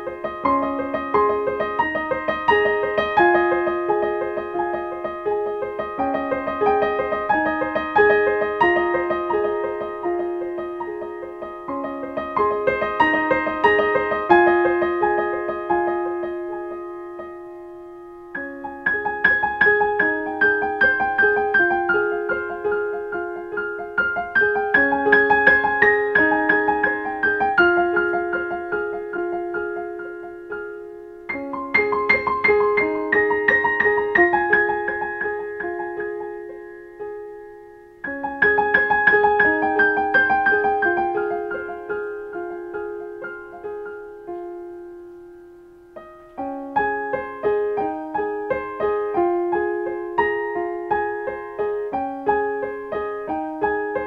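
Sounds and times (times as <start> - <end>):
slow solo piano piece: 0.0 - 54.0.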